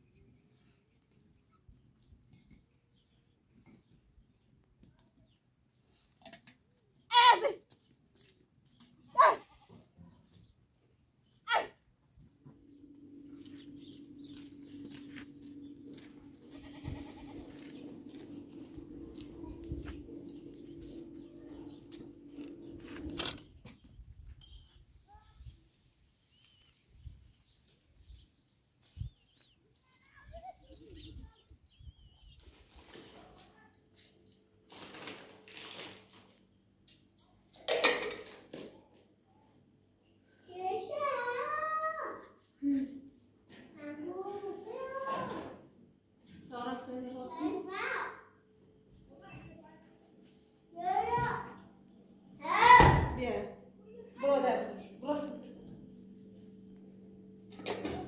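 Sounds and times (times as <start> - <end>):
goat bleating: 9.1 - 9.8, 16.3 - 17.7
steady low hum: 12.0 - 25.0, 45.6 - 58.0.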